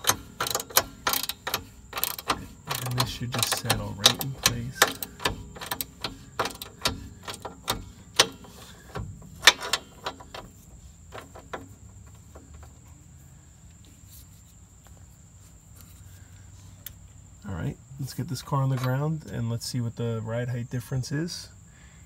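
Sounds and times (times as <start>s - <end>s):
metal knock: 0.0s - 10.5s
socket ratchet clicking: 0.0s - 10.5s.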